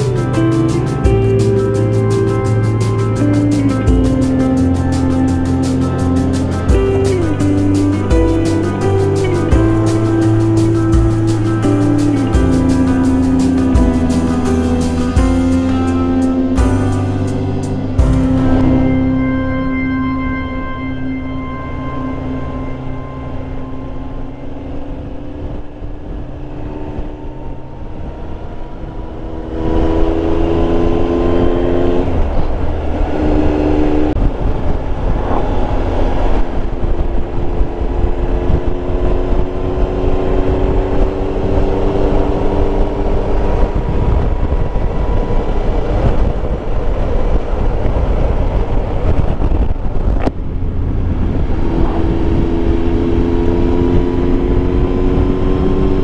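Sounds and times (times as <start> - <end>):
motorcycle engine running: 0.0 - 19.3
wind and road noise: 0.0 - 56.0.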